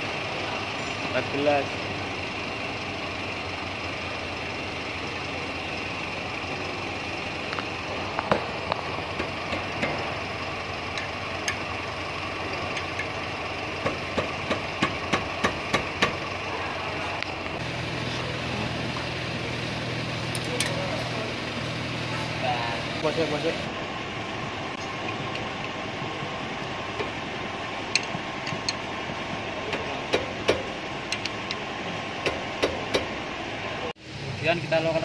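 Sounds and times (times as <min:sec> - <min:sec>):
steady mechanical hum: 0:00.0 - 0:35.0
metal clicks and knocks of wrench: 0:27.9 - 0:28.8.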